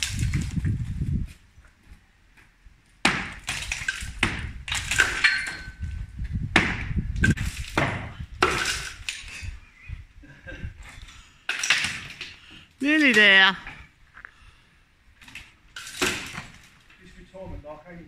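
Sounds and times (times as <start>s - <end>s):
hammer striking brickwork: 3.0s - 5.8s, 6.5s - 8.9s.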